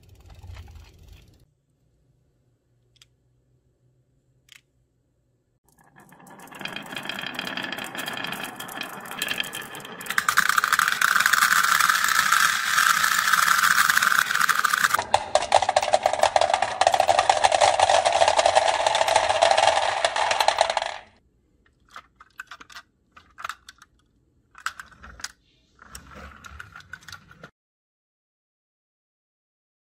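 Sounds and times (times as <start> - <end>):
steel balls rattling down wooden track: 0.0 - 1.5, 5.7 - 21.2.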